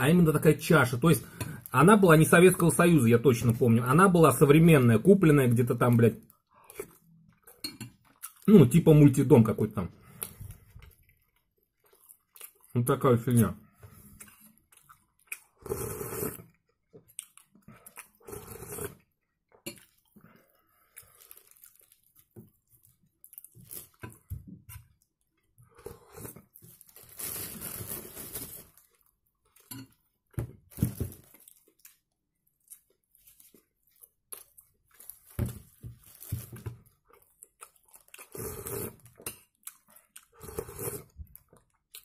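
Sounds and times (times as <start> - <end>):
chewing and mouth noises: 10.1 - 12.8, 14.1 - 15.6, 16.5 - 18.3, 37.0 - 42.0
person slurping soup: 15.6 - 16.5, 17.8 - 19.1, 25.7 - 26.5, 38.3 - 39.0, 40.4 - 41.2.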